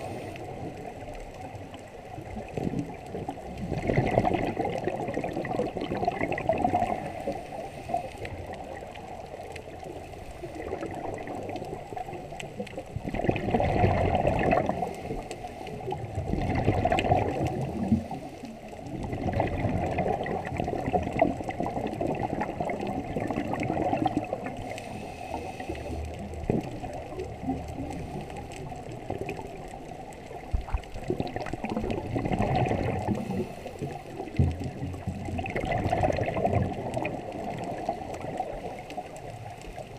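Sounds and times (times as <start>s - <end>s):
underwater air bubbles gurgling: 0.0s - 39.9s.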